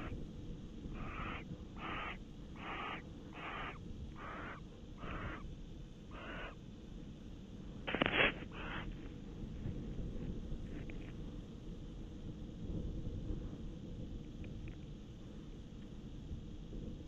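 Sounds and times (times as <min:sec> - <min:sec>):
barn owl hissing rasps: 0:00.9 - 0:05.5, 0:06.1 - 0:06.6, 0:08.1 - 0:09.0.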